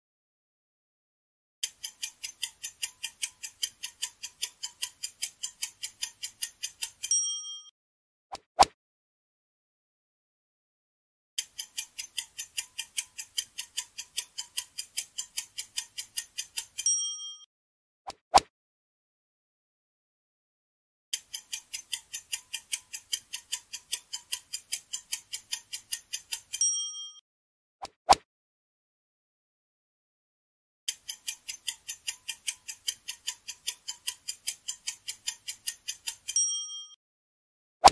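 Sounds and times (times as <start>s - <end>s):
rapid clock ticking: 1.6s - 7.1s, 11.4s - 16.8s, 21.2s - 26.6s, 30.9s - 36.4s
bell-like ding: 7.1s - 7.7s, 16.9s - 17.4s, 26.6s - 27.2s, 36.4s - 37.0s.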